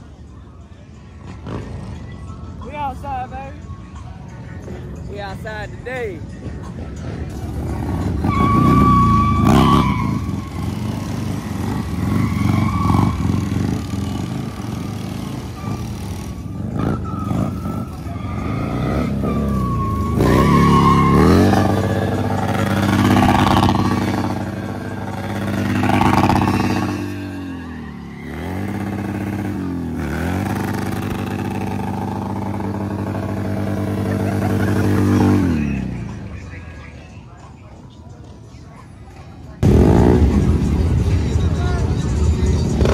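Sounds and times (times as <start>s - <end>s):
motorcycle engine revving: 6.8s - 36.6s, 39.6s - 42.9s
tyre squealing on asphalt: 7.4s - 36.4s.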